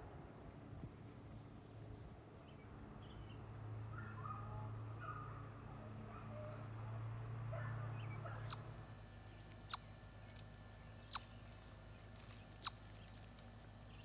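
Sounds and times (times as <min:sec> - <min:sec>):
chipmunk chip calls: 0:08.4 - 0:08.7, 0:09.6 - 0:10.0, 0:11.0 - 0:11.4, 0:12.6 - 0:13.0.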